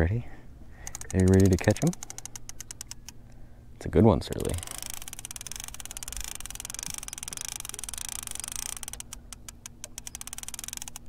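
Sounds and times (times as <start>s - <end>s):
low steady hum: 0.0s - 11.0s
fishing reel clicking: 0.8s - 3.2s, 4.3s - 11.0s.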